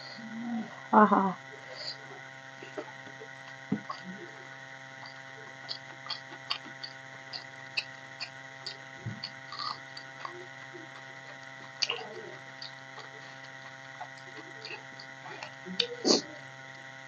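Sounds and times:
steady hum: 0.0 - 17.0
wet mouth clicks and lip smacks: 5.0 - 10.4.

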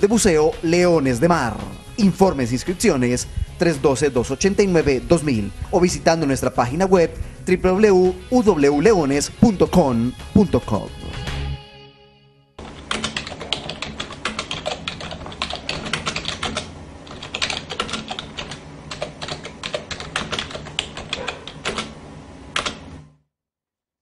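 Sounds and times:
rapid keyboard keystrokes: 12.6 - 23.0.

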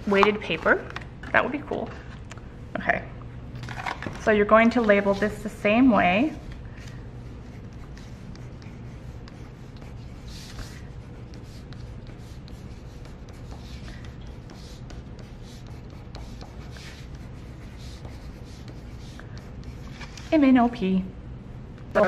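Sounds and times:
pencil scratching on paper: 7.2 - 20.3.

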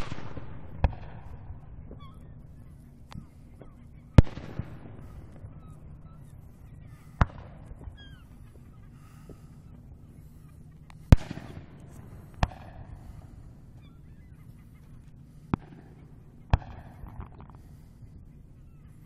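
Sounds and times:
distant firework booms: 11.1 - 13.4.

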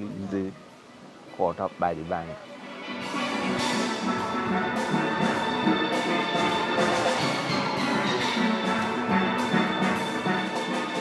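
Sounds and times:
steel pans playing calypso: 0.7 - 11.0
percussion beat: 3.1 - 11.0.

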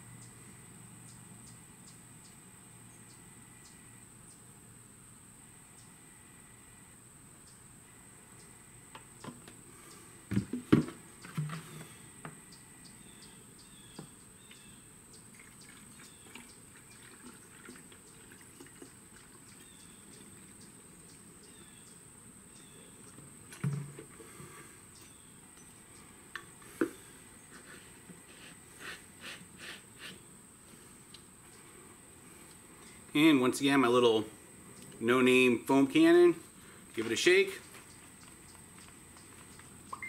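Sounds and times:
plastic jugs knocking: 10.3 - 11.9, 23.5 - 24.5
liquid trickling into a bottle: 15.3 - 19.7.

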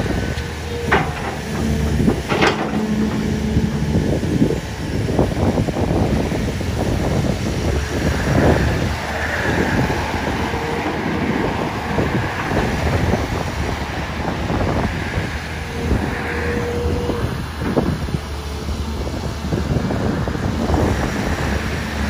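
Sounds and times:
excavator diesel engine: 0.0 - 22.0.

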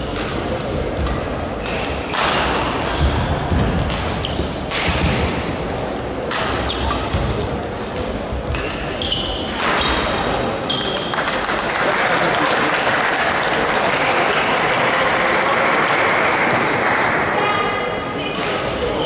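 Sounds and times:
shoes squeaking on court floor: 0.0 - 2.2, 4.2 - 4.7, 6.5 - 11.1
racket striking shuttlecock: 0.1 - 5.4.

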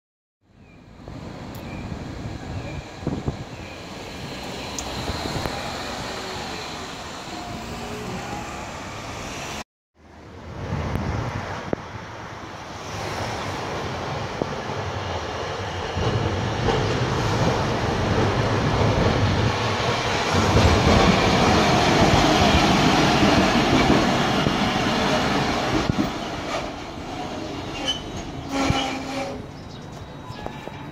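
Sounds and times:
streetcar wheels rumbling on rails: 0.5 - 30.9
wheel squeals: 27.6 - 30.9.

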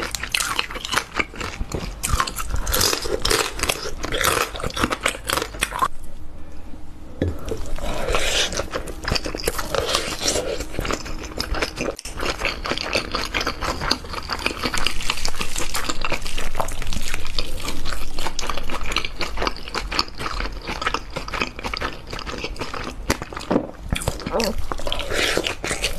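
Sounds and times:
chewing and wet mouth sounds: 0.0 - 5.9, 7.2 - 25.9.

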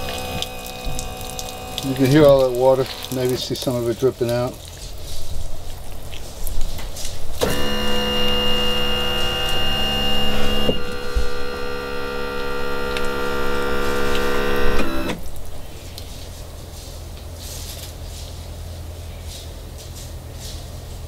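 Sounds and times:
tilt motor whining: 0.0 - 3.2, 7.4 - 15.3.

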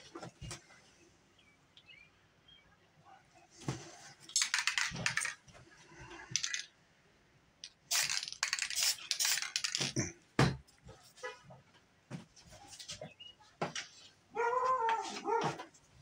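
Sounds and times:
spray paint can hissing: 7.8 - 10.0.

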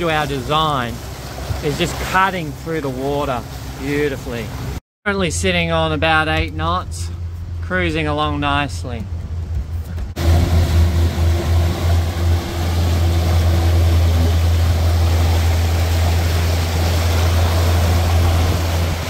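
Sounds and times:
boat wake water churning: 0.0 - 19.0
steady low hum: 5.2 - 19.0.

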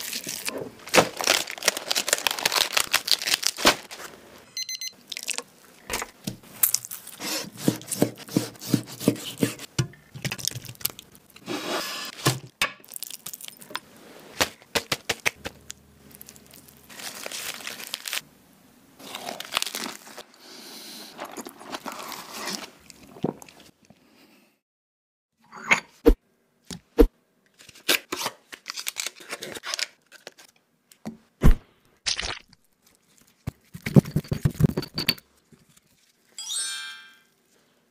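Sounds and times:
food cracking and crunching: 0.0 - 4.0, 5.0 - 7.2, 10.1 - 11.4, 12.8 - 13.8, 14.4 - 18.2, 19.0 - 20.3, 32.0 - 33.8
lettuce leaves tearing: 0.0 - 4.0, 15.2 - 18.2, 19.0 - 20.2.

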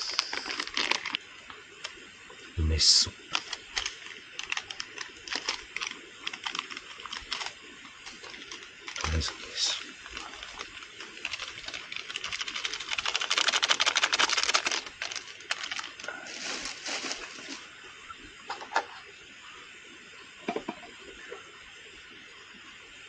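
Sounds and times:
plastic sachet shaken and rustled: 0.0 - 1.2, 3.3 - 17.7.

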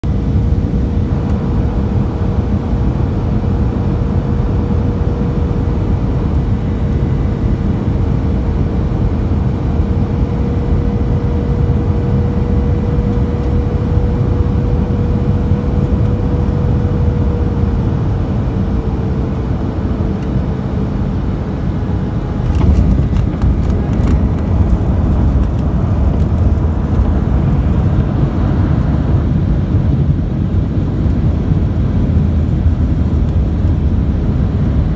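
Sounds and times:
jet engine and airflow rumble: 0.0 - 34.9
thin steady hum: 0.1 - 29.5
clattering and rattles: 22.4 - 27.1.

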